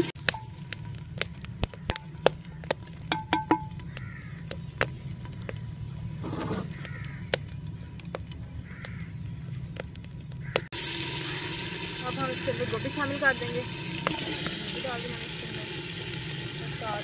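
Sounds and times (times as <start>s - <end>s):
masala frying in oil: 0.0s - 17.0s
wood fire crackling: 0.0s - 17.0s.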